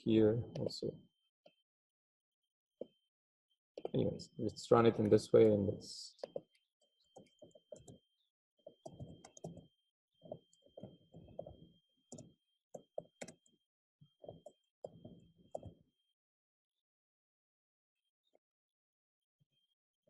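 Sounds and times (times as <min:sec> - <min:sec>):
computer keyboard typing: 0:04.9 - 0:08.0, 0:08.7 - 0:13.5, 0:14.2 - 0:15.8.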